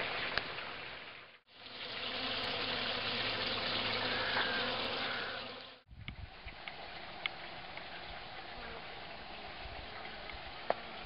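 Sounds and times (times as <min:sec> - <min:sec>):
bees buzzing: 0:01.6 - 0:05.8.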